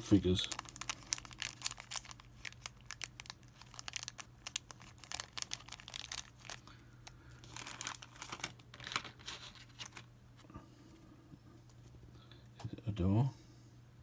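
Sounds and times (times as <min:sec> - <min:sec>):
plastic bags crinkling: 0:00.0 - 0:10.1.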